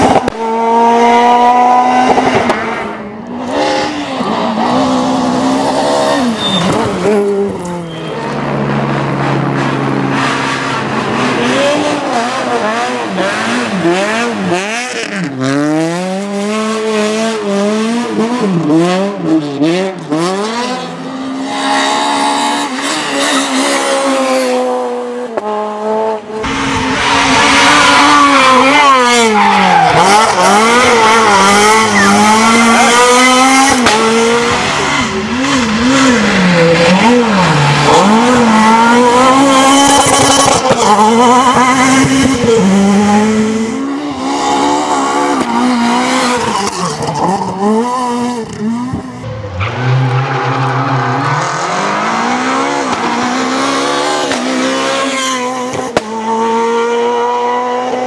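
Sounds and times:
car at full throttle: 0.0s - 58.0s
rally car engines revving: 0.0s - 58.0s.

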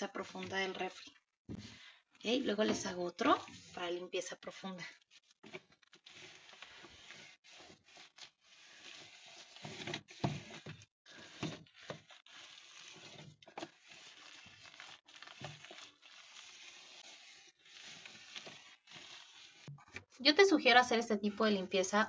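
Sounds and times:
cloth rubbing on plastic: 2.9s - 19.8s.

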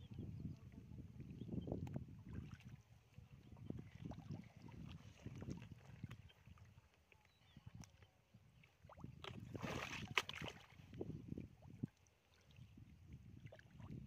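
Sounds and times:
hands sloshing through mud and water: 8.8s - 11.0s.

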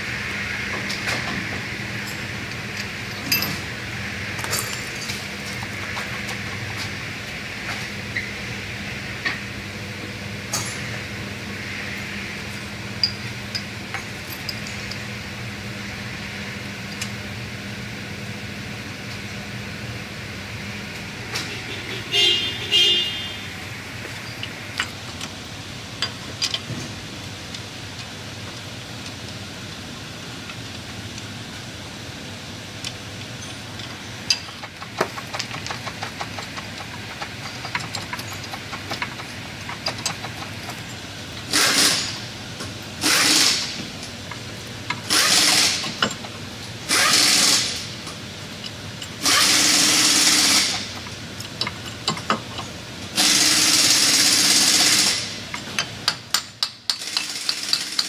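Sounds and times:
hand tools clicking and tapping: 33.8s - 40.9s, 50.6s - 52.7s, 55.5s - 58.0s
pneumatic impact wrench bursts: 41.5s - 42.2s, 43.0s - 43.8s, 45.0s - 46.1s, 46.9s - 47.9s, 49.2s - 50.9s, 53.2s - 55.4s, 56.9s - 58.0s.

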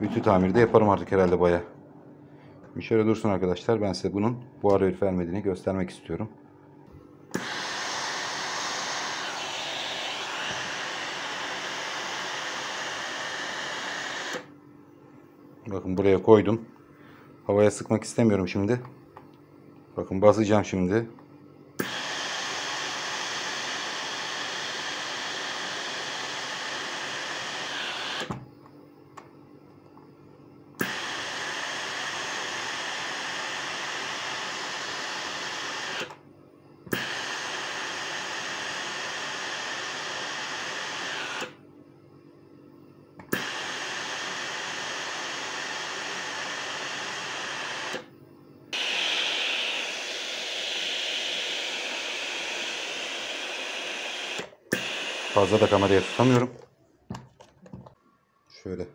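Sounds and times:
steam iron hissing: 7.3s - 14.5s, 21.8s - 28.4s, 30.8s - 36.2s, 36.9s - 41.6s, 43.2s - 48.1s, 48.7s - 56.5s.

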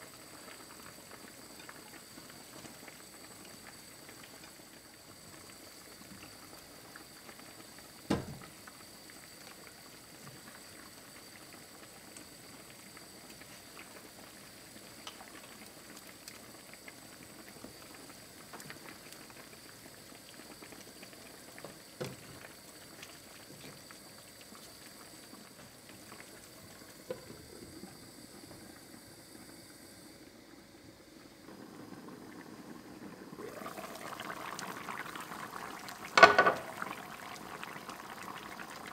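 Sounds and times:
stew bubbling in a pan: 0.0s - 38.9s
sharp knocks against pan: 36.2s - 36.6s.

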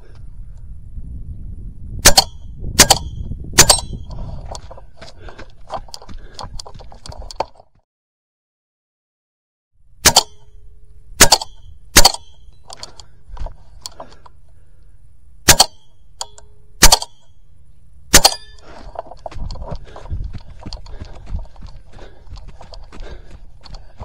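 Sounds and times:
air rifle shots: 2.0s - 4.0s, 10.0s - 10.5s, 11.2s - 12.4s, 15.4s - 17.2s, 18.1s - 18.7s
rough scuffing noise: 4.1s - 7.7s, 18.6s - 24.0s.

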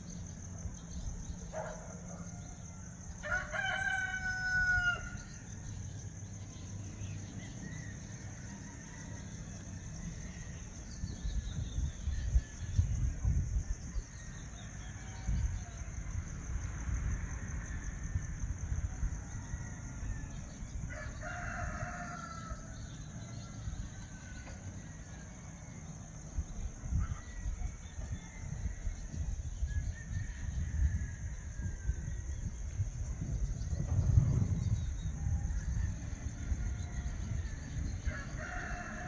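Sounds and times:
crickets chirring: 0.0s - 39.0s
rooster crowing: 2.3s - 5.4s, 19.0s - 24.8s, 35.4s - 39.0s.

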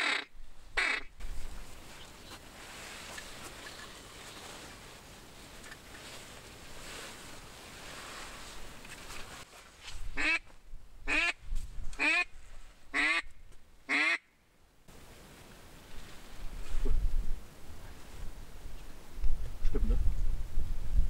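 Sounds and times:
duck quacks: 0.0s - 1.1s, 13.0s - 13.3s, 13.9s - 14.2s.

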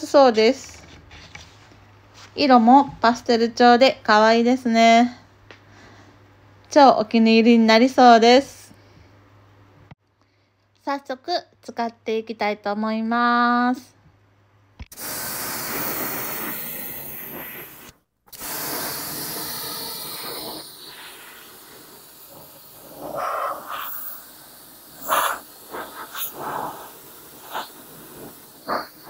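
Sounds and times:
pressure washer spray hissing: 15.0s - 29.0s.

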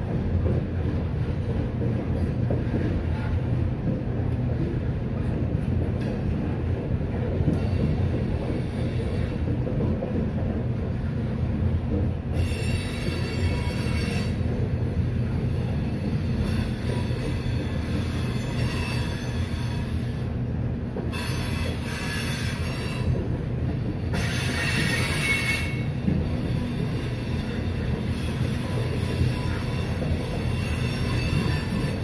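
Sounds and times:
freight train rumbling past: 0.0s - 32.0s
train wheels squealing: 7.5s - 9.4s, 12.3s - 14.5s, 15.4s - 20.3s, 21.1s - 23.2s, 24.1s - 32.0s.

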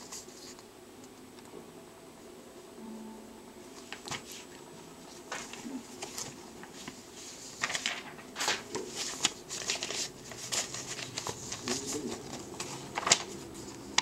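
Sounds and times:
paper rustling and crinkling: 0.0s - 0.6s, 3.8s - 14.0s.

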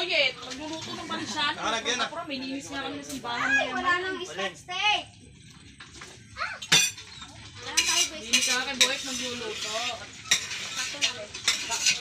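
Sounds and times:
dishes and cutlery clinking: 6.6s - 12.0s.

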